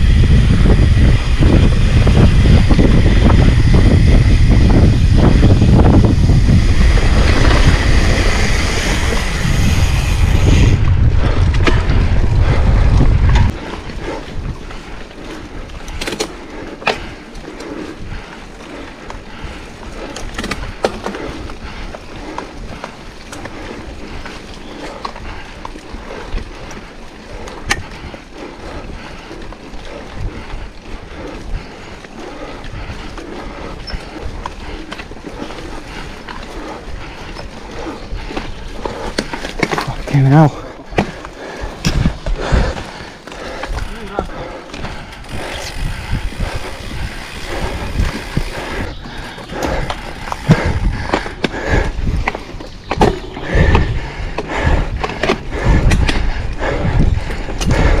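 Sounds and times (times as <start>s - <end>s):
tires rolling: 0.0s - 16.1s
bike rattling: 0.0s - 58.0s
wind buffeting microphone: 0.0s - 58.0s.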